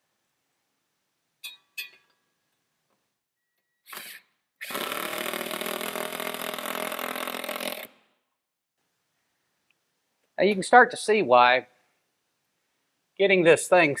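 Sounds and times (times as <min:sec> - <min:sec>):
cordless drill driving bolt: 0:03.9 - 0:08.0.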